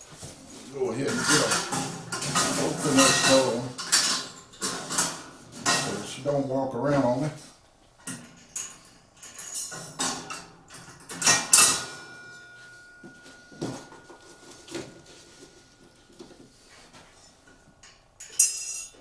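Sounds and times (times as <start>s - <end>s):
metal scraping clatter: 0.0s - 6.3s
metal tools clinking and scraping: 0.0s - 7.3s, 8.0s - 19.0s.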